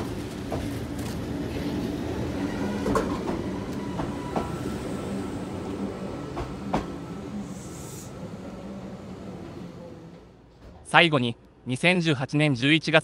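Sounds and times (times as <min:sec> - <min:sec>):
electric train running: 0:00.0 - 0:10.4
train wheels knocking on rail joints: 0:02.8 - 0:04.6.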